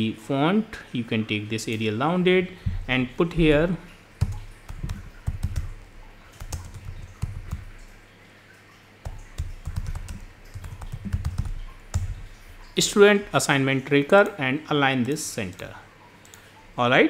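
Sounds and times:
keyboard typing clicks: 4.2s - 7.8s, 9.0s - 12.3s, 15.0s - 16.5s.

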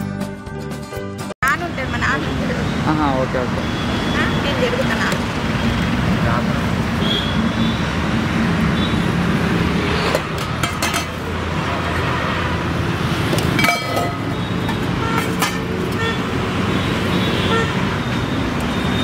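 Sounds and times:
road traffic noise: 0.0s - 19.0s
metal utensils clinking: 10.6s - 11.3s, 13.5s - 15.8s.

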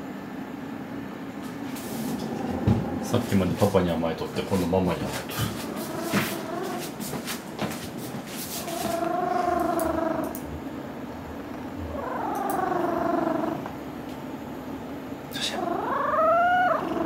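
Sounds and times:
cat purring loudly: 4.4s - 7.0s, 8.4s - 10.6s, 11.2s - 13.7s, 15.4s - 17.0s.

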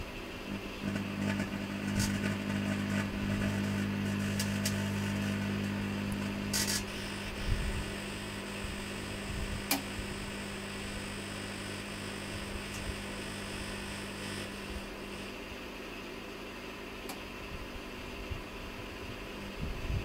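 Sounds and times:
microwave oven humming: 0.0s - 20.0s
sharp crackles and clicks: 0.5s - 15.3s.

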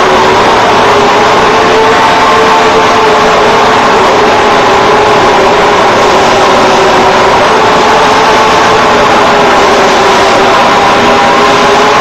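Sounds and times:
machine hum with steady whine: 0.0s - 12.0s.

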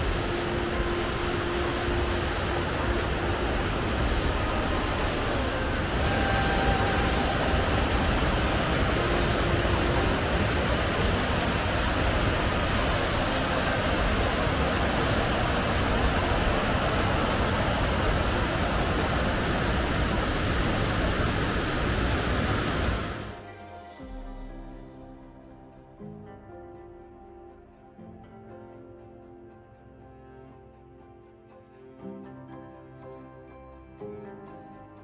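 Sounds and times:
waterfall rushing over rock: 0.0s - 23.4s.

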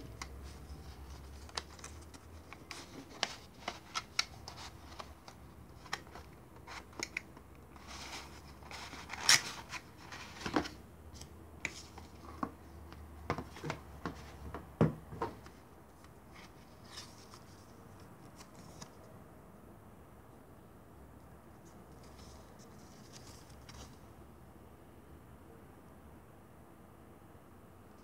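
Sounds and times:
paper leaflets rustling: 0.0s - 10.8s.

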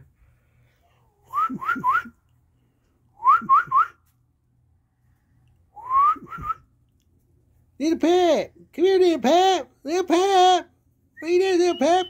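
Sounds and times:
person whistling: 1.3s - 2.2s, 3.2s - 4.0s, 5.8s - 6.6s.

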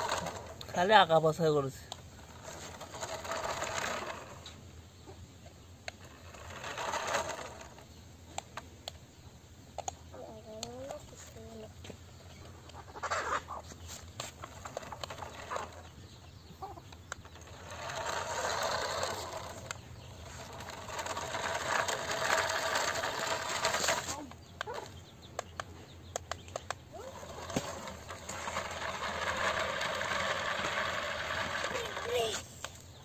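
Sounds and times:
toy car electric motor and gears: 0.0s - 4.6s, 5.8s - 9.0s, 12.4s - 33.0s
small ticks: 24.1s - 28.1s.

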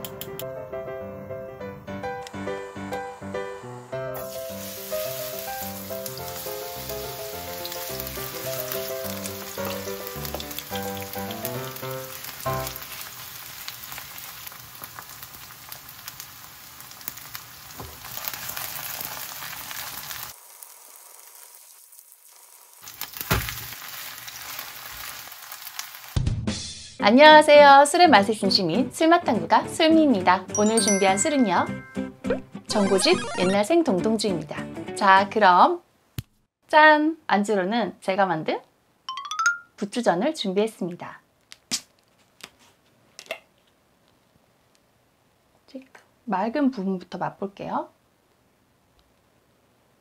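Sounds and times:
background music: 0.0s - 12.8s, 26.4s - 35.5s
batter sizzling in oil: 4.2s - 26.2s.

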